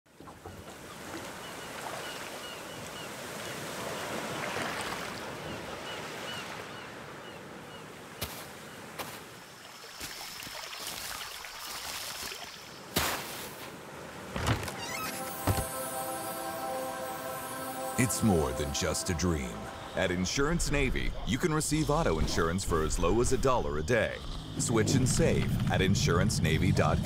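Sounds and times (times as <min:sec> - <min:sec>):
ocean surf on beach: 0:00.8 - 0:09.8, 0:12.8 - 0:21.9.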